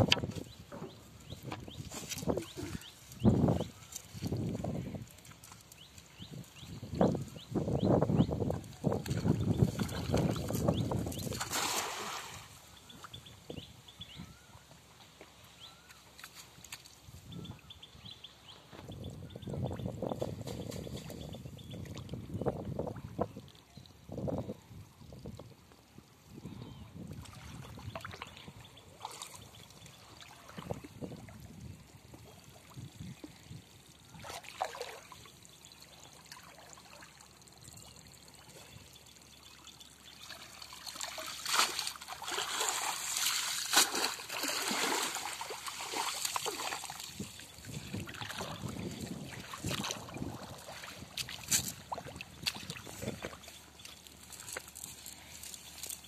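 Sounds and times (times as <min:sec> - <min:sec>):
water splashing and sloshing: 0:00.0 - 0:13.7, 0:27.0 - 0:56.0.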